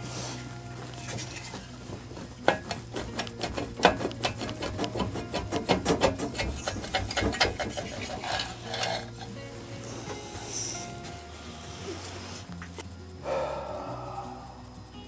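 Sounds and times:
metal clicks clinks and scrapes: 2.4 - 9.4.

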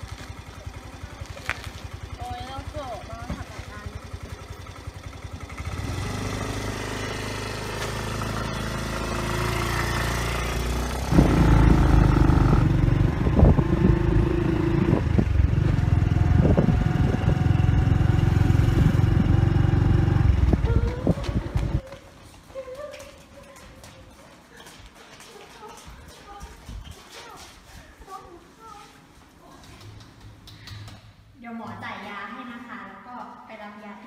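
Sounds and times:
scooter engine pulling away: 0.0 - 21.9.

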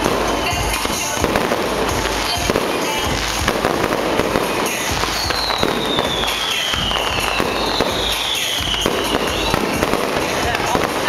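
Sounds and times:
fireworks bangs and crackling: 0.0 - 11.0
high descending whistle: 5.0 - 9.6.

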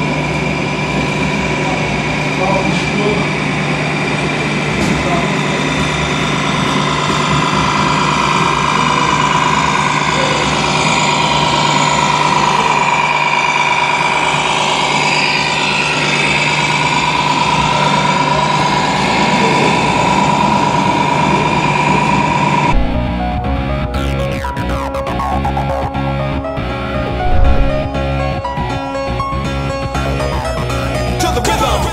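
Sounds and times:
constant high whine: 0.0 - 31.0
toy truck diesel engine sound: 3.7 - 22.7.

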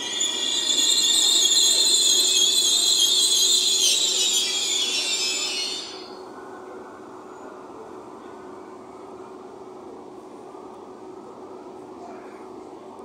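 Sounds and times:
train brakes screeching: 0.0 - 6.3.

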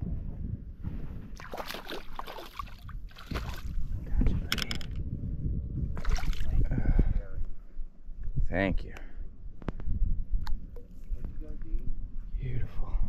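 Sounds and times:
wind buffeting microphone: 0.0 - 13.0
short splashes: 1.4 - 3.8, 6.0 - 6.5
water lapping against boat hull: 1.4 - 3.8.

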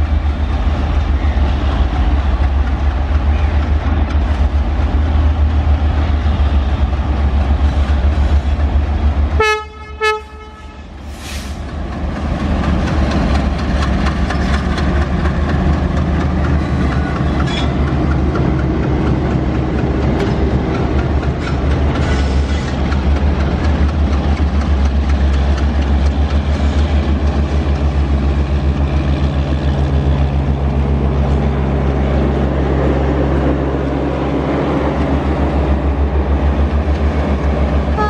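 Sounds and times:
diesel locomotive droning: 0.0 - 38.0
train clacking over rail joints: 0.0 - 38.0
locomotive horn blast: 9.4 - 11.5.

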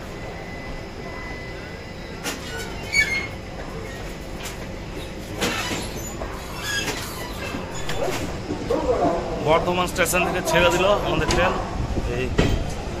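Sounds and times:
train coaches rumbling past: 7.3 - 13.0.

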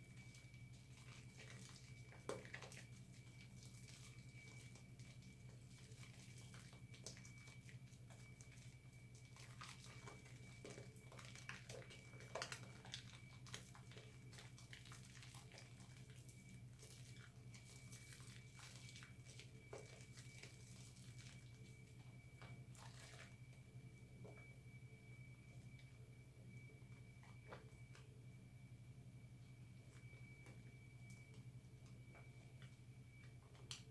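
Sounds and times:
soap lather squishing and crackling: 0.1 - 23.4
thin high whine: 16.0 - 33.9.

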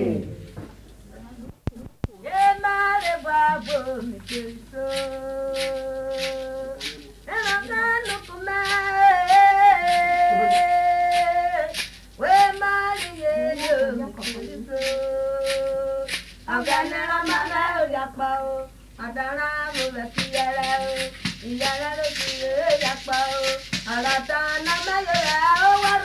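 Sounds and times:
faint low hum: 0.0 - 26.0
person singing long sliding notes: 2.2 - 17.8
steady percussive beat: 2.4 - 17.7, 19.7 - 26.0.

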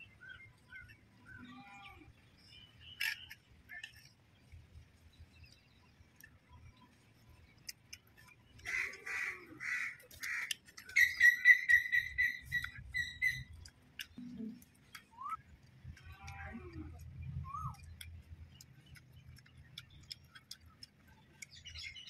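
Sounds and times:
bird chirping: 0.0 - 22.0
bird harsh calls: 8.6 - 13.6.

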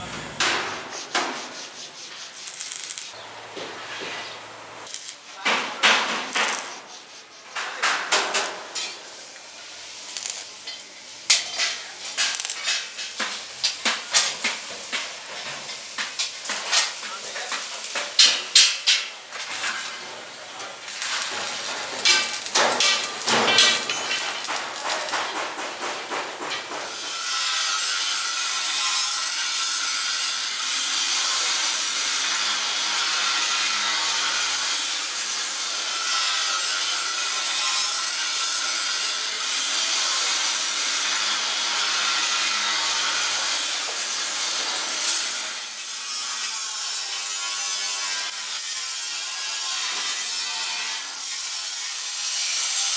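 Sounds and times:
loud rasping hiss: 0.0 - 3.2, 4.3 - 10.6, 18.2 - 25.4
sheet metal knocks and clatter: 21.3 - 26.9.

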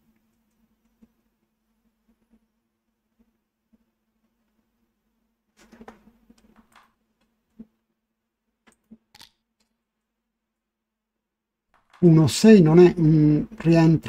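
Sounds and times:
faint clicks and taps: 0.1 - 2.5.

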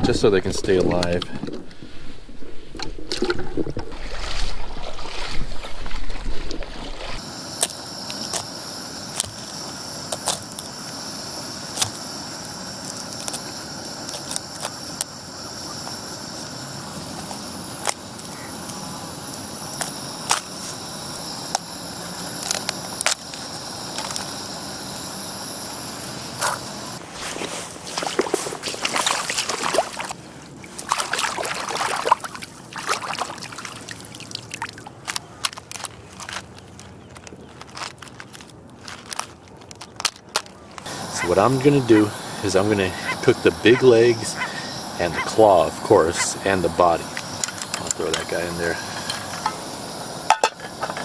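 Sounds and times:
water splashing and sloshing: 1.2 - 7.2, 27.0 - 36.9
steady background hiss: 7.0 - 34.5, 40.6 - 51.0.

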